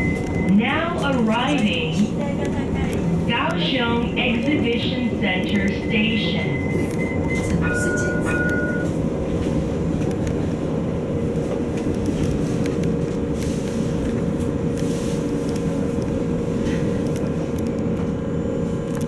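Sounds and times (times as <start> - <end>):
tram rumbling and humming: 0.0 - 19.0.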